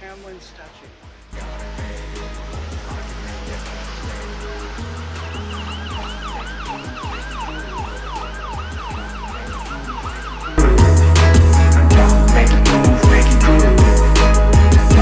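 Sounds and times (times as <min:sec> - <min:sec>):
music with bass beat: 0:00.1 - 0:15.0
siren yelping: 0:05.2 - 0:10.6.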